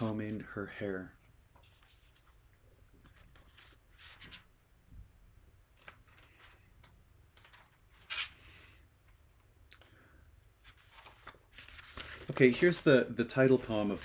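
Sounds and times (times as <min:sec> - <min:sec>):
book pages rustling: 0:01.5 - 0:02.4, 0:03.0 - 0:04.5, 0:10.6 - 0:14.0.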